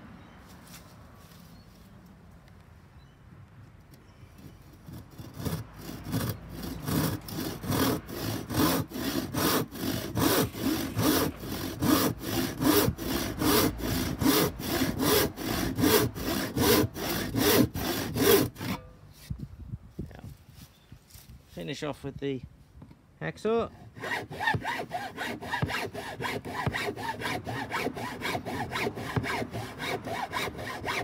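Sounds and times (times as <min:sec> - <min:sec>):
hand saw cutting board: 0:04.8 - 0:18.9, 0:23.9 - 0:31.0.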